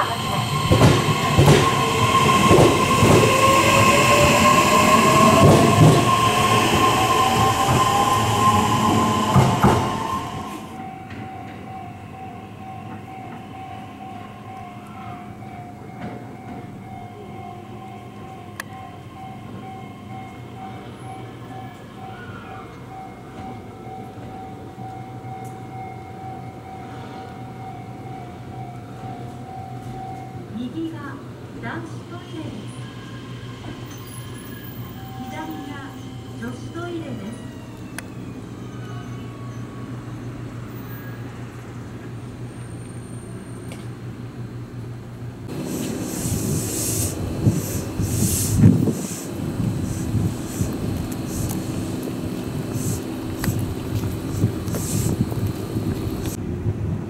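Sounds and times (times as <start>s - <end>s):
electric train rumbling: 0.0s - 57.0s.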